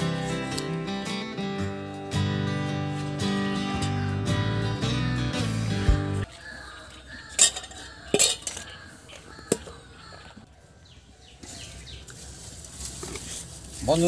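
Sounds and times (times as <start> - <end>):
guitar music: 0.0 - 6.2
metal bowls and plates clinking: 7.2 - 10.2.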